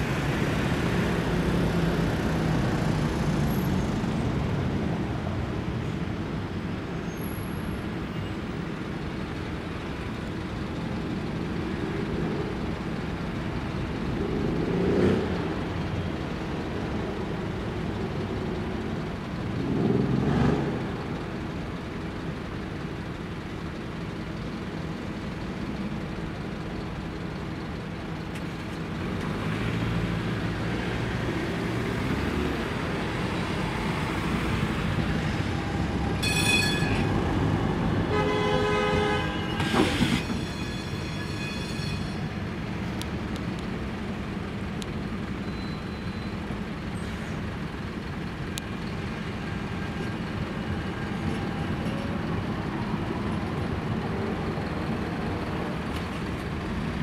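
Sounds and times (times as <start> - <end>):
traffic din: 0.0 - 57.0
tram passing: 11.4 - 46.9, 47.5 - 57.0
tram warning signal: 35.2 - 42.9.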